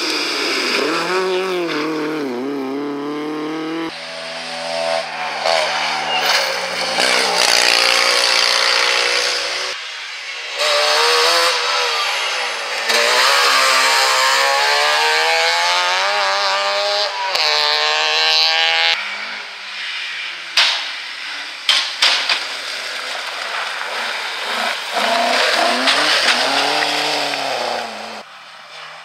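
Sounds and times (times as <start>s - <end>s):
rally car engine revving: 0.0s - 9.8s, 10.4s - 19.5s, 22.6s - 28.3s
sharp cracks: 20.5s - 27.8s
tyres scrabbling on gravel: 22.2s - 28.0s.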